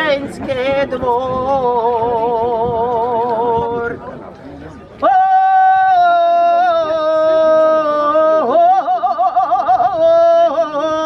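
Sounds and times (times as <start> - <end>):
woman singing unaccompanied: 0.0 - 4.0, 5.0 - 11.0.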